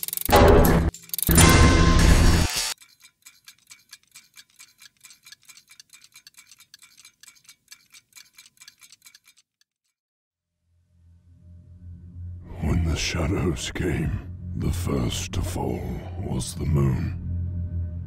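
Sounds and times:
clockwork ticking: 0.0 - 9.9.

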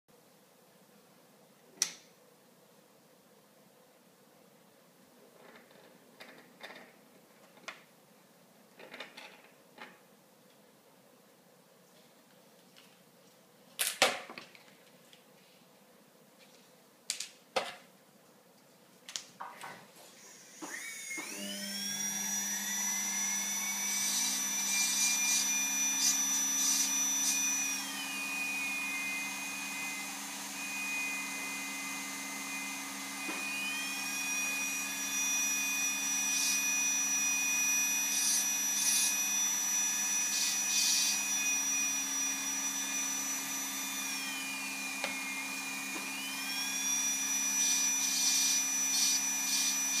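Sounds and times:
dental handpiece whining: 20.2 - 50.0.

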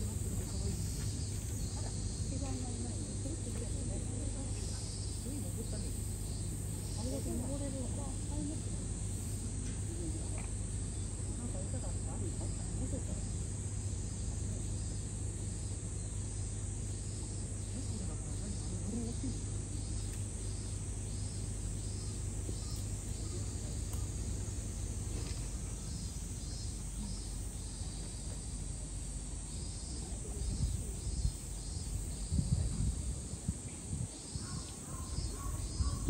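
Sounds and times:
low steady hum: 0.0 - 36.0
insects calling in short pulses: 17.1 - 36.0.

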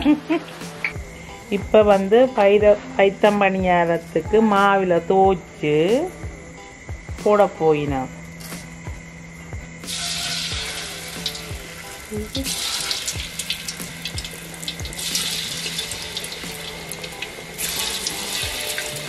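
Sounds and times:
batter balls sizzling in hot oil: 9.9 - 19.0.

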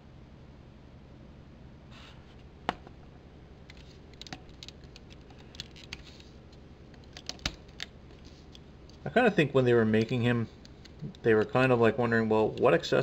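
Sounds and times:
steady low hum: 0.0 - 13.0
plastic parts clicking: 3.7 - 6.3, 6.9 - 9.0.

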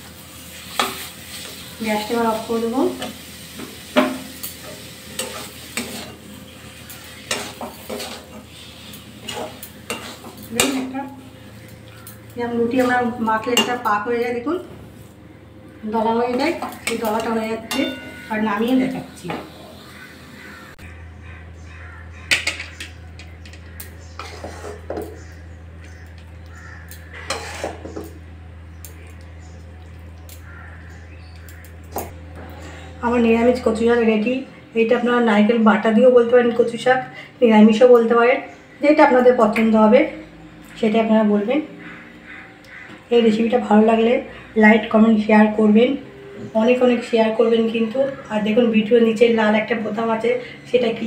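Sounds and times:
faint frying sizzle: 0.0 - 15.2, 15.8 - 20.8
low steady hum: 0.0 - 51.0
metal spatula scraping wok: 0.2 - 15.2, 15.9 - 20.8, 23.5 - 25.3, 27.1 - 28.2
spatula scraping plate and pan: 3.0 - 11.7, 24.1 - 25.2, 27.1 - 28.1.

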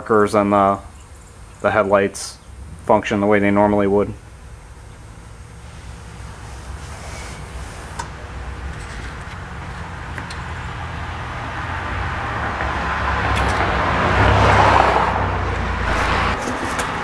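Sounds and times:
steady low hum: 0.0 - 13.7, 15.3 - 17.0
passing road vehicle: 9.2 - 17.0.

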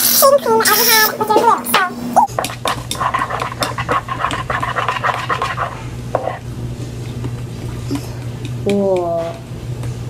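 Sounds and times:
spoons stirring sticky slime: 2.3 - 6.4
wet scraping and squelching: 2.4 - 6.4.

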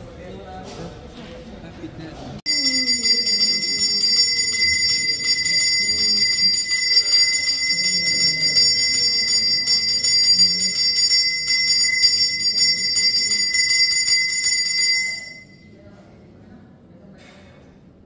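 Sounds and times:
temple bell ringing rapidly: 2.5 - 15.8.

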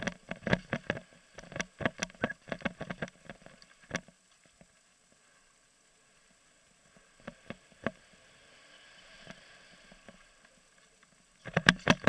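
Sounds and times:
bike knocking on wooden planks: 0.0 - 4.7, 11.4 - 12.0.

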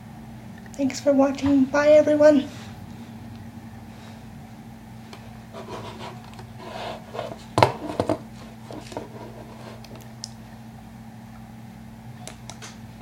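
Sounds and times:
steady low hum: 0.0 - 13.0
rubbing and scraping handling noise: 5.5 - 10.0.

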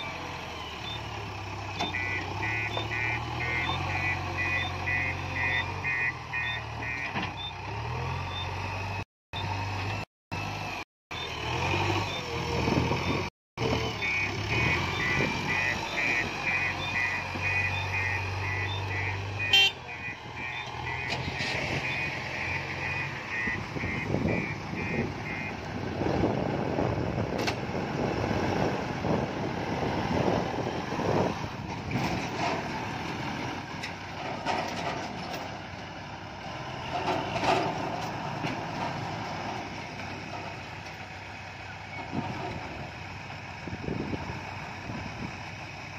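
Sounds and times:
heavy diesel machinery running: 0.0 - 45.9
reversing alarm beeping: 1.8 - 12.4, 13.0 - 25.6.

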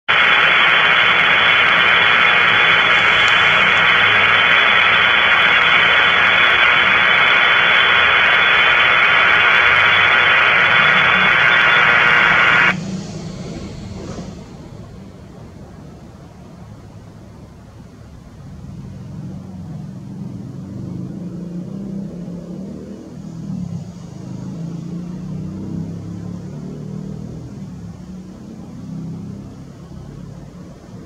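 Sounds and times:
radio static hiss: 0.0 - 16.4.

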